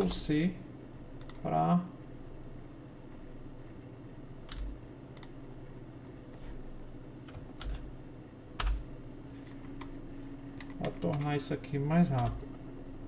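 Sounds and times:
computer keyboard keystrokes: 1.2 - 1.5, 4.5 - 5.4, 8.6 - 8.8, 10.6 - 11.4, 12.1 - 12.5.

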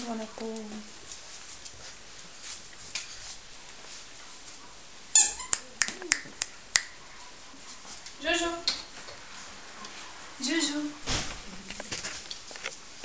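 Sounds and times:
puppy squeak: 5.2 - 5.7.

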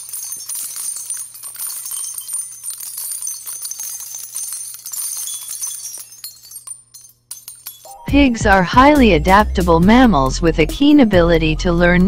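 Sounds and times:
small bells jingling: 0.0 - 9.8.

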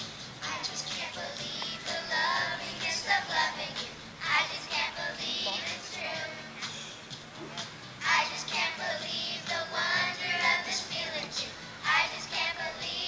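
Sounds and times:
children singing together: 0.4 - 6.5, 8.0 - 13.0.

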